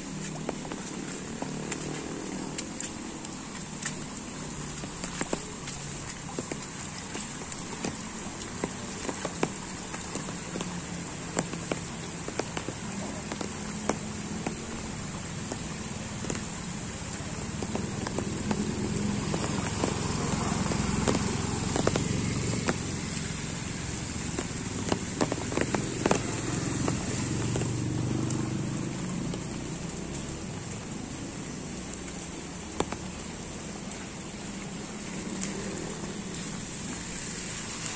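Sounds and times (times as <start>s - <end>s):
heavy rain on flooded ground: 0.0s - 37.9s
splashing through floodwater: 0.0s - 37.9s
scooter engine passing: 17.3s - 29.5s.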